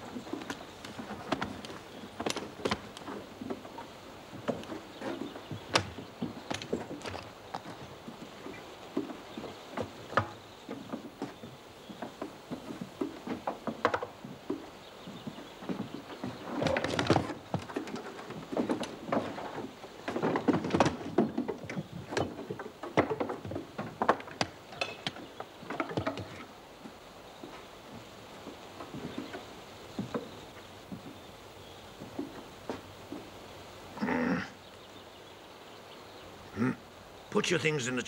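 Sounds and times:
wood knocking and scraping on wood: 0.0 - 31.3, 31.9 - 33.4.

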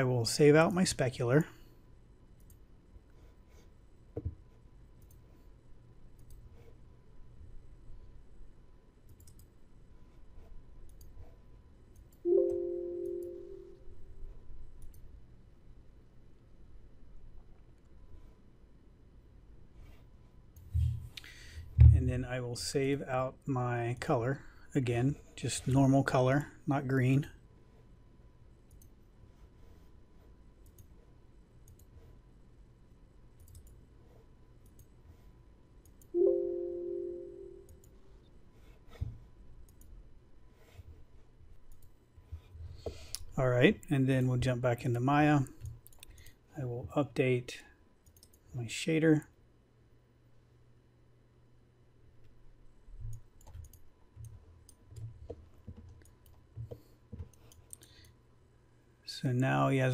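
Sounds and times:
computer mouse clicks: 2.4 - 2.7, 5.0 - 5.4, 6.1 - 6.8, 9.0 - 9.6, 10.4 - 12.2, 14.8 - 15.1, 28.6 - 29.9, 30.6 - 31.0, 31.6 - 32.2, 33.4 - 36.1, 38.9 - 40.0, 41.6 - 43.3, 45.6 - 46.4, 48.0 - 48.4, 53.0 - 58.2
computer alert chime: 12.3 - 14.0, 36.2 - 37.8
soft low thumps: 21.7 - 22.3.

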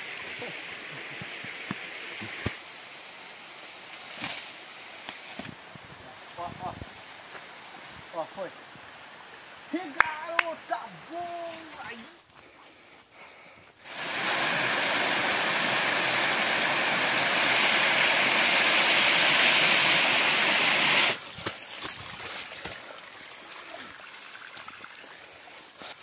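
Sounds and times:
waterfall rushing over rocks: 13.8 - 21.2.

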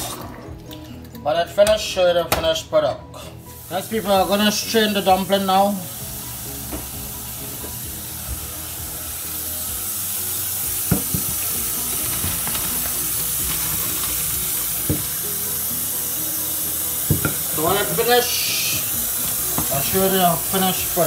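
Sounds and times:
pot knocking: 10.9 - 12.8, 14.8 - 15.2, 17.0 - 17.5, 19.2 - 19.9.

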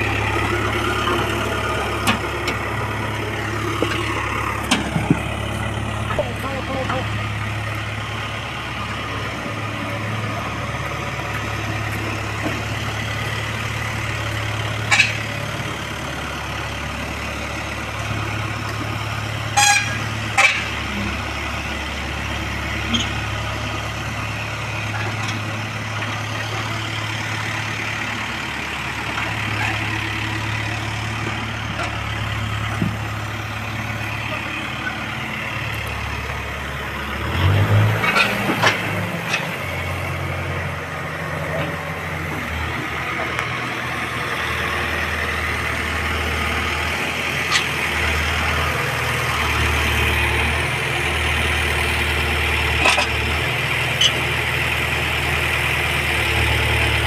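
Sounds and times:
diesel engine running: 0.0 - 57.0.

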